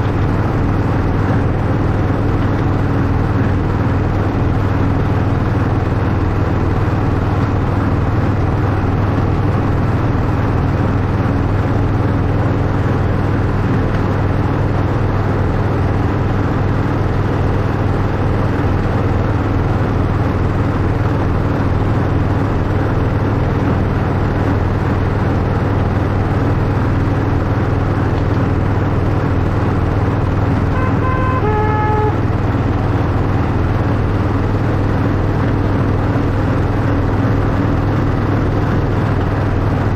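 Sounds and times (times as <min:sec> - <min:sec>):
two-note horn: 0:30.6 - 0:32.5.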